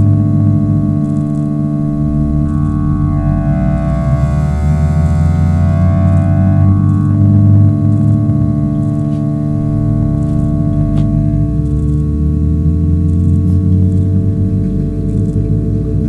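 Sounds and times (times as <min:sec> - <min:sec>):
deep low hum: 0:00.0 - 0:16.0
electronic feedback drone: 0:00.0 - 0:16.0.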